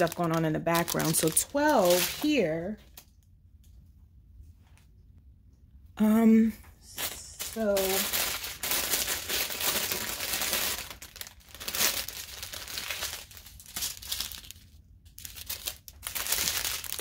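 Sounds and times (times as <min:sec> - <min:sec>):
plastic bags crinkling: 0:00.0 - 0:03.1, 0:06.9 - 0:17.0.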